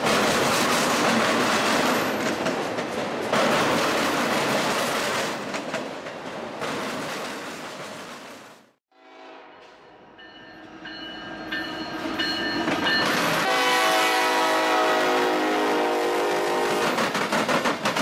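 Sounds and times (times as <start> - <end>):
locomotive air horn blasts: 8.9 - 10.1, 13.4 - 17.0.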